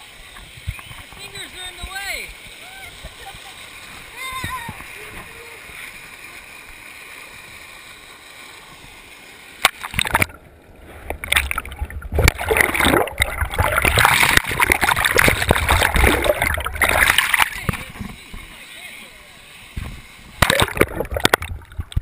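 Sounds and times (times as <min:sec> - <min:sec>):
water rushing along slide: 0:00.0 - 0:22.0
muffled underwater churning: 0:09.7 - 0:18.6, 0:19.8 - 0:22.0
splash into pool: 0:11.3 - 0:17.9, 0:20.4 - 0:21.6.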